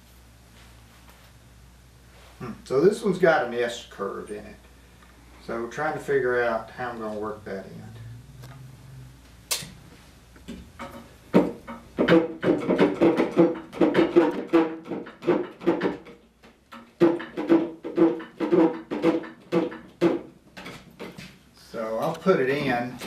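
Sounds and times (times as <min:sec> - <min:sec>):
sharp click: 0:09.5 - 0:09.8.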